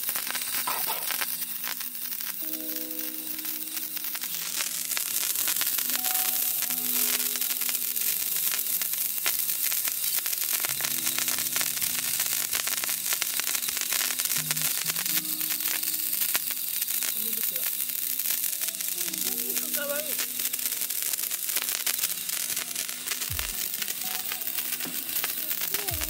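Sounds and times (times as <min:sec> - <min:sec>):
fireworks spraying sparks: 0:00.0 - 0:26.0
background music: 0:02.4 - 0:04.7, 0:05.7 - 0:08.3, 0:10.7 - 0:16.5, 0:21.8 - 0:26.0.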